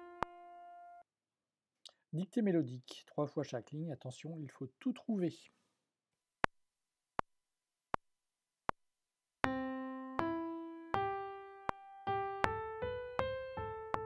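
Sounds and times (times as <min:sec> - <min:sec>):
metronome clicks: 0:00.0 - 0:00.4
piano melody: 0:00.0 - 0:01.0, 0:09.4 - 0:14.0.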